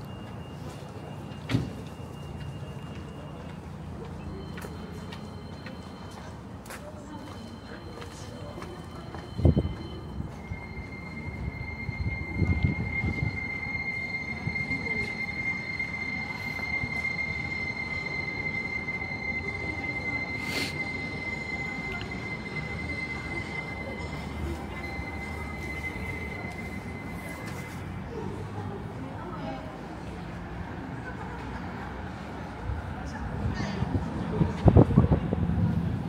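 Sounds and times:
low rumbling street noise: 0:00.0 - 0:36.0
steady high-pitched whine: 0:09.4 - 0:28.0.

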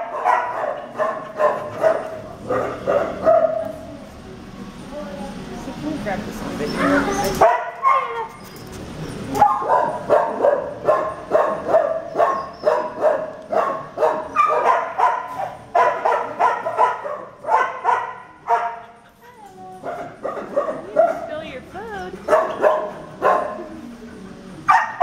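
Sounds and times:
dog barking: 0:00.0 - 0:03.9, 0:06.9 - 0:08.3, 0:09.4 - 0:18.9, 0:19.8 - 0:21.3, 0:22.2 - 0:23.7, 0:24.7 - 0:25.0.

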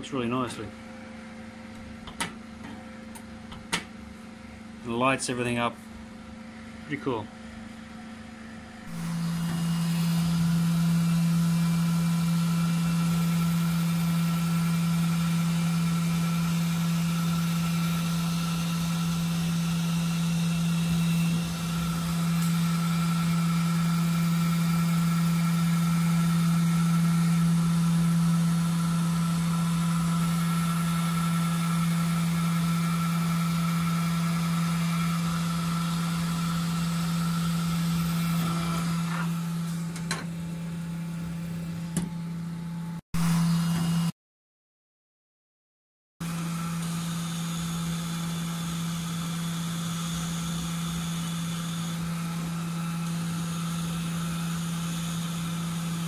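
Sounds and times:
laser engraver machine hum: 0:07.4 - 0:42.4, 0:46.3 - 0:56.0.

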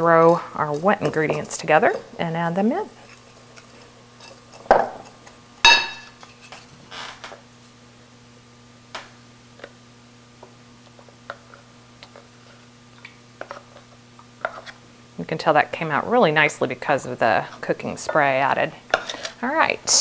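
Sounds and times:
faint steady hum: 0:00.0 - 0:20.0
whisk knocking ceramic bowl: 0:00.6 - 0:02.0.

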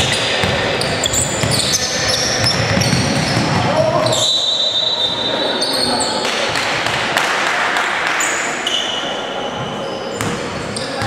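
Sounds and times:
basketball bouncing: 0:00.0 - 0:01.8, 0:02.4 - 0:03.8, 0:10.2 - 0:10.6
sneakers squeaking: 0:00.0 - 0:06.6, 0:08.2 - 0:11.0
voices of players and spectators: 0:00.0 - 0:11.0.

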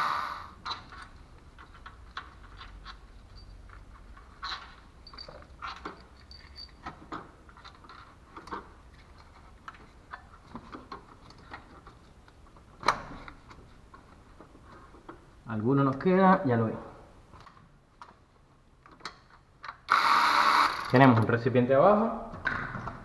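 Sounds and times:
small metal clicks and clinks: 0:04.6 - 0:08.6.

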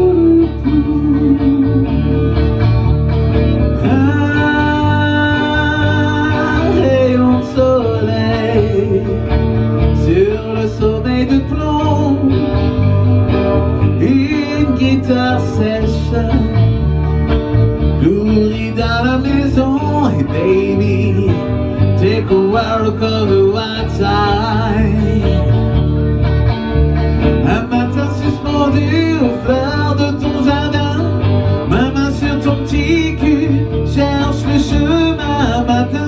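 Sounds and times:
song with guitar and singing: 0:00.0 - 0:36.0.

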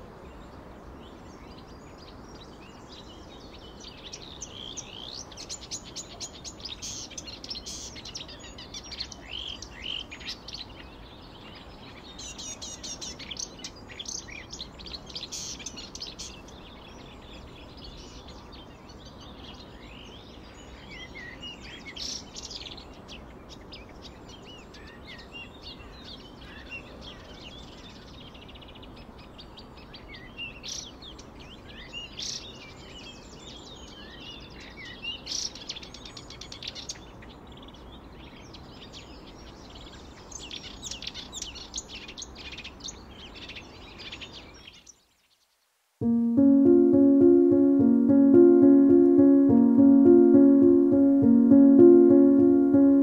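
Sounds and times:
low background noise: 0:45.0 - 0:53.0.

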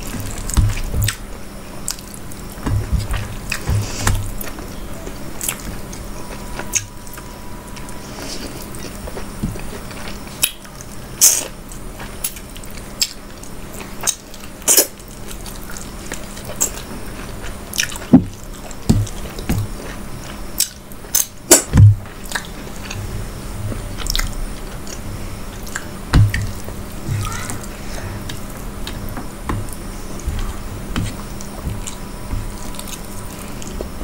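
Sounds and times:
low thumps: 0:00.0 - 0:01.2, 0:02.6 - 0:04.4, 0:21.7 - 0:22.1, 0:26.1 - 0:27.3
chewing and mouth smacks: 0:06.6 - 0:23.0, 0:23.7 - 0:26.6, 0:31.0 - 0:34.0.

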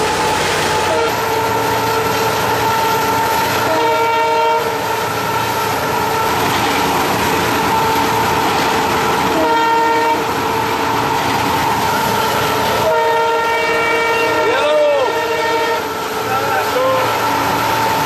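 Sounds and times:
train horn blasts: 0:00.0 - 0:06.5, 0:09.3 - 0:10.8, 0:12.2 - 0:18.0
locomotive engine whine: 0:00.0 - 0:18.0.

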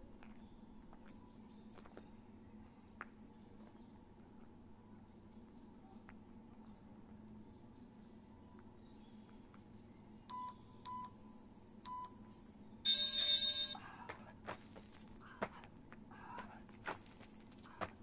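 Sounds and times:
electronic timer beeps: 0:10.3 - 0:13.8
hands and feet scuffing gravel: 0:14.2 - 0:15.7, 0:16.4 - 0:18.0.

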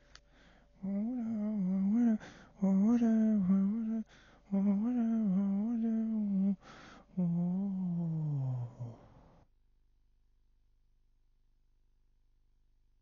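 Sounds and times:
short breaths: 0:00.0 - 0:00.8, 0:02.2 - 0:02.6, 0:04.1 - 0:04.4, 0:06.6 - 0:07.1
person humming a tune: 0:00.8 - 0:09.0.

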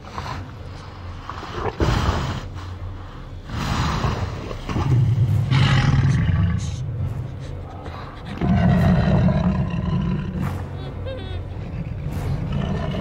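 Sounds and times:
deep rumbling dinosaur breathing: 0:00.0 - 0:10.8, 0:11.4 - 0:13.0
low growling: 0:03.4 - 0:13.0.

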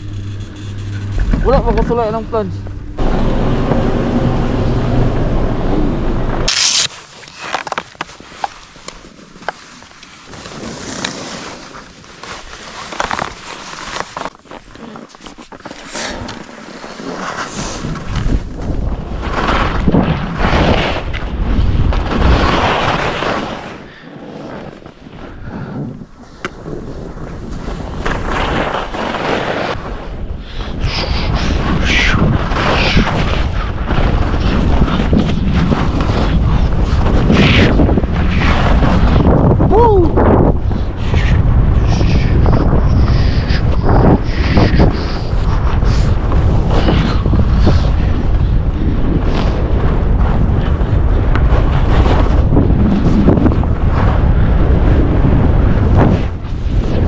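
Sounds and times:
wind buffeting microphone: 0:00.0 - 0:06.6, 0:29.9 - 0:57.0
skis scraping through snow: 0:06.3 - 0:39.6, 0:40.4 - 0:57.0
skis hissing over snow: 0:06.5 - 0:07.2.

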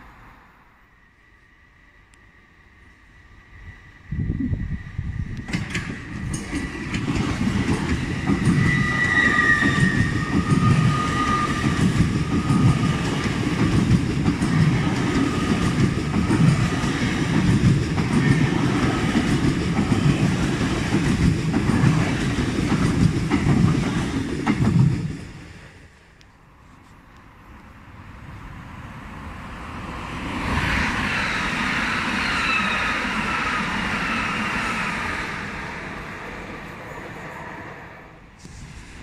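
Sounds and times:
train wheels rumbling on rails: 0:03.0 - 0:26.1.

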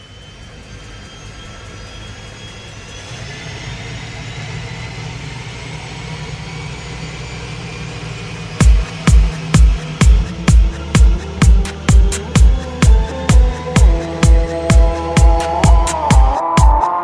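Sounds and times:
engine-like drone riser: 0:00.0 - 0:17.0
high tones rising in pitch: 0:06.4 - 0:17.0.

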